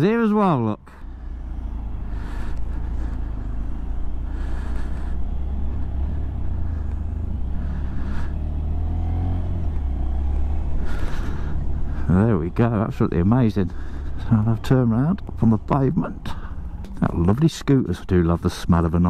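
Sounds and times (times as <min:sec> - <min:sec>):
motorcycle engine running: 0:00.9 - 0:17.4.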